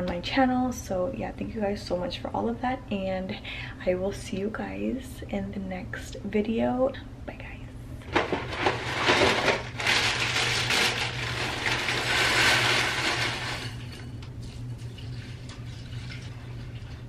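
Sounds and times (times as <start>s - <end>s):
plastic bag crinkling: 8.1s - 14.0s
cereal pouring into bowl: 8.2s - 14.0s
milk pouring into bowl: 10.6s - 17.0s.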